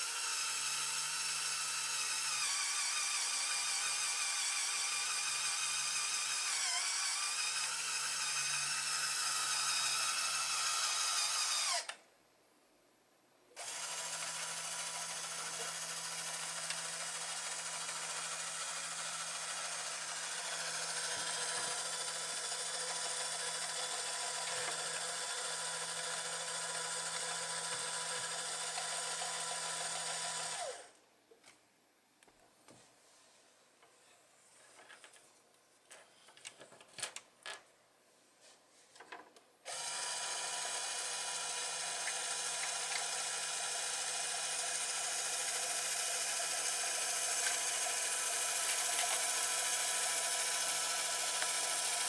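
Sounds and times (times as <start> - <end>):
electric motor geared whine: 13.6 - 30.9, 39.7 - 52.0.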